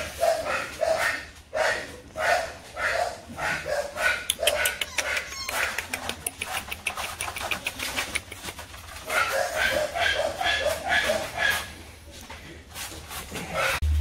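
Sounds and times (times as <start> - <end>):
dog barking: 0.0 - 5.9, 9.0 - 11.8
sharp clicks and taps: 4.3 - 8.9.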